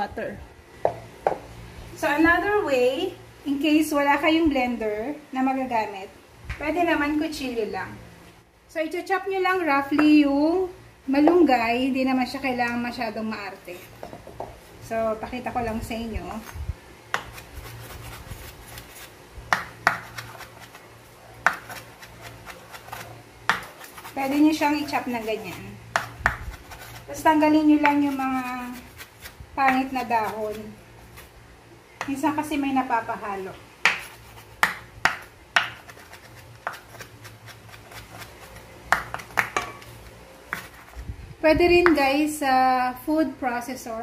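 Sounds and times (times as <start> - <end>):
knife chopping on wooden board: 17.1 - 18.5, 19.5 - 20.5, 21.4 - 24.1, 25.9 - 26.9, 33.8 - 37.1, 37.7 - 39.9
cleaver chopping on wooden board: 19.5 - 20.1, 23.5 - 23.9, 33.8 - 35.9.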